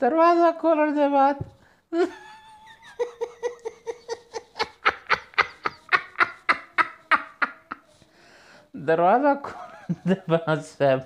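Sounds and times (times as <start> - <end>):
man laughing: 2.0 - 7.9.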